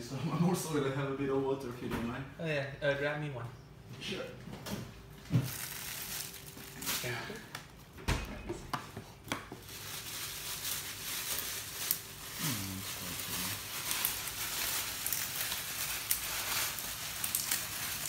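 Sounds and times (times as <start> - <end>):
crinkling rustle: 5.2 - 7.6, 9.6 - 18.0.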